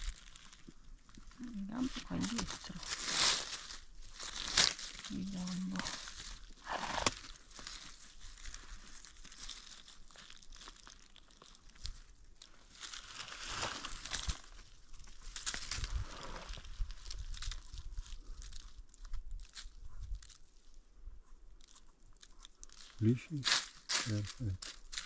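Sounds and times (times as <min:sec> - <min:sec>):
dry leaves rustling and crackling: 0:00.0 - 0:20.7, 0:21.6 - 0:25.0.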